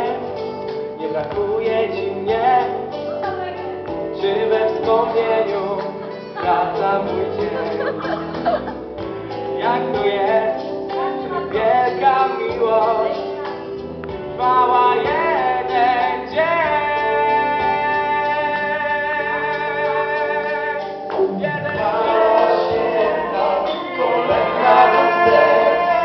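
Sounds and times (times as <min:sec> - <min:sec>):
small vocal group singing: 0:01.0 - 0:08.5, 0:14.4 - 0:26.0.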